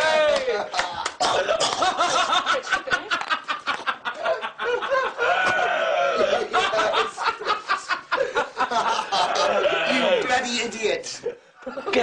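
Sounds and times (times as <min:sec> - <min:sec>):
men laughing hard: 0:00.6 - 0:10.2.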